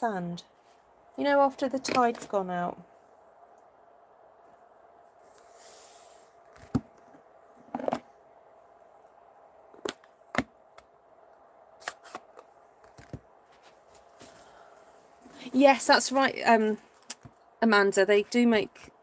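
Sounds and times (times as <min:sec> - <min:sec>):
faint steady hum: 0:00.0 - 0:19.0
soft rustle: 0:04.4 - 0:06.6, 0:13.4 - 0:15.8.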